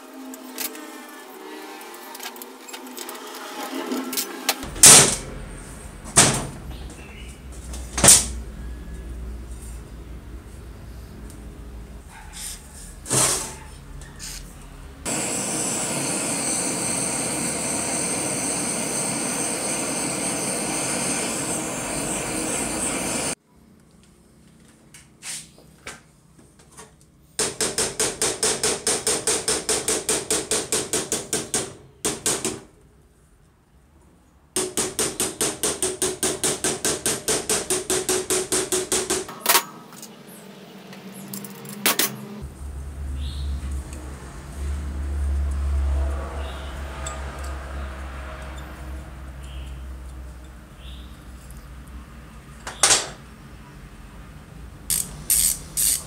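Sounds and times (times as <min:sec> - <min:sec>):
steady rushing noise: 0:04.5 - 0:08.6, 0:15.1 - 0:23.4.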